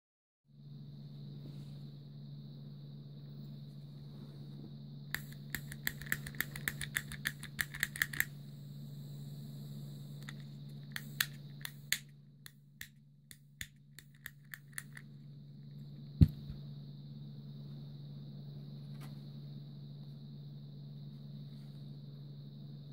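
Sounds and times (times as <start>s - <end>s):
torch lighter igniter clicking: 5.1s - 8.4s, 10.2s - 15.0s.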